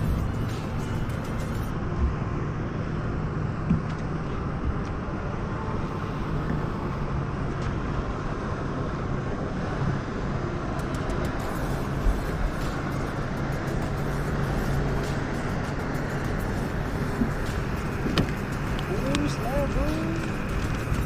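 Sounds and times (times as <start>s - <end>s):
light knocks on a boat: 18.0s - 18.4s.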